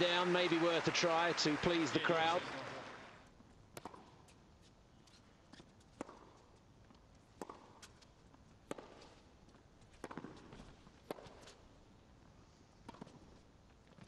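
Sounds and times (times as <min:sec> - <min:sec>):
tennis ball hitting racket: 0:03.7 - 0:04.2, 0:07.4 - 0:08.0, 0:08.6 - 0:09.1, 0:10.0 - 0:11.6.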